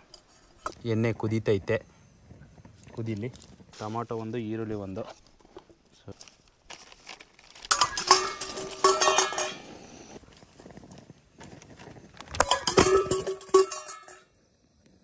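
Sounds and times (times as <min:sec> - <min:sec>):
phone clattering onto a pan: 0:07.7 - 0:09.6, 0:12.4 - 0:14.2
metallic clinks against a pan: 0:07.7 - 0:09.7, 0:12.4 - 0:14.3.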